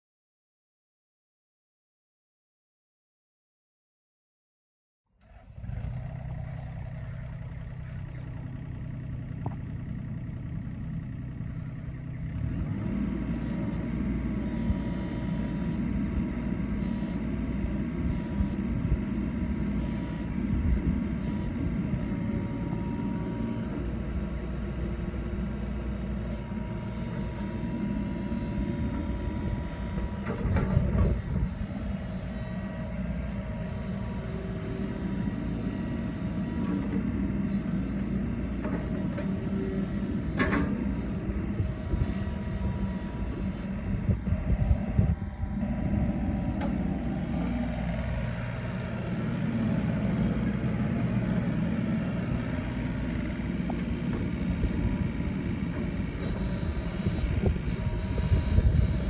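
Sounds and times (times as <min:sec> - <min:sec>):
excavator diesel engine running: 0:05.2 - 0:59.0.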